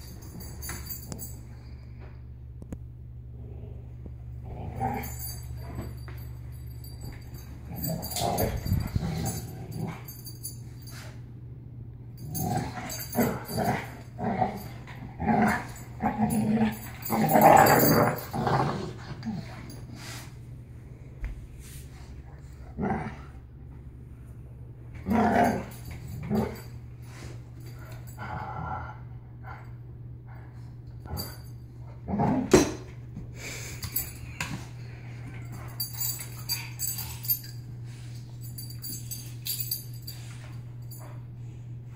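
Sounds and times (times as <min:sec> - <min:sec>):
dogs growling: 0:03.3 - 0:06.2, 0:07.4 - 0:10.5, 0:12.2 - 0:20.0, 0:22.6 - 0:23.4, 0:25.0 - 0:26.7.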